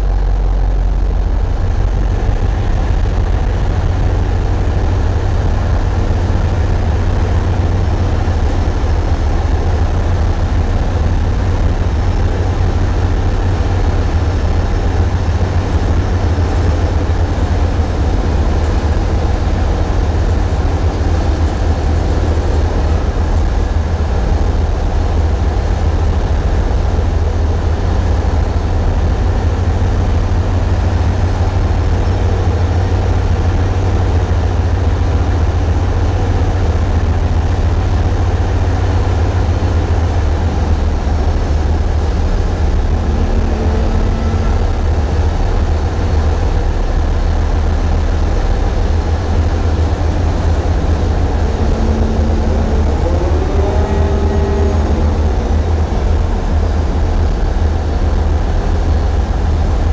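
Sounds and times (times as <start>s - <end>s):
boat diesel engine droning: 0.0s - 59.9s.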